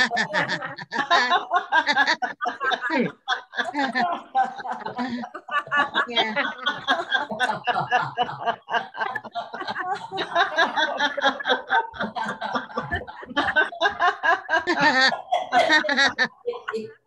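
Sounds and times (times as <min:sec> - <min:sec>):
group of people laughing: 0:00.0 - 0:17.0.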